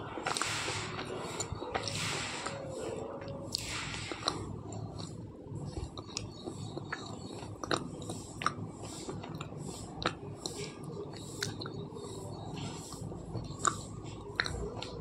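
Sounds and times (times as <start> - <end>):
grinding chews: 0.1 - 2.6, 3.2 - 15.0.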